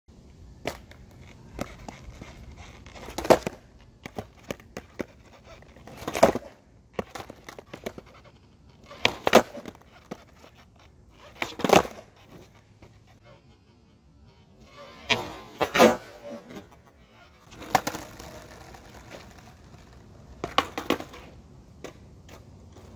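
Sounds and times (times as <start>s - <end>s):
skateboard wheels clicking: 0.5s - 13.3s, 14.6s - 22.9s
skateboard clattering on concrete: 0.6s - 8.2s, 8.8s - 12.5s, 17.5s - 22.9s.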